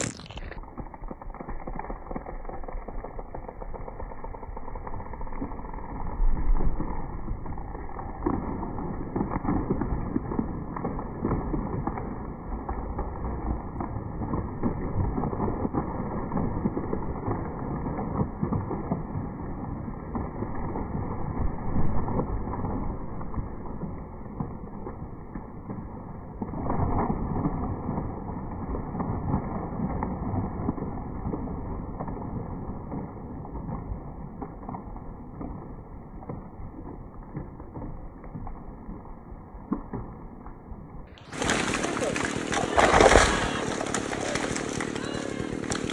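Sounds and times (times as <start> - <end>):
distant chainsaw cutting: 0.0 - 7.4, 41.2 - 45.9.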